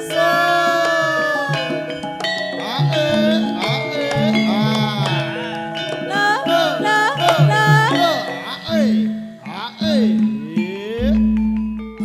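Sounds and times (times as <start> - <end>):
person singing sliding line: 0.0 - 11.4
drum strokes: 0.0 - 12.0
metallophone notes: 0.0 - 12.0.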